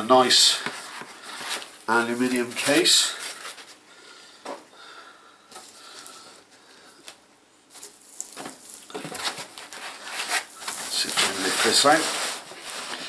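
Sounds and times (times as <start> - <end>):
foam rustling against cardboard: 7.7 - 13.0.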